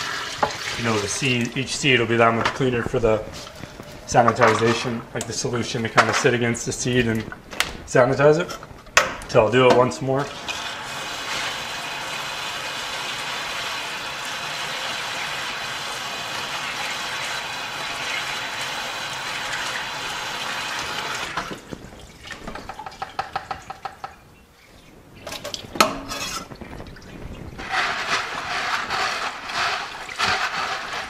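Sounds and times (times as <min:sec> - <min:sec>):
hose water running into bucket: 0:00.0 - 0:06.9, 0:10.2 - 0:23.9, 0:27.6 - 0:31.0
knocks and clunk: 0:08.5 - 0:09.9.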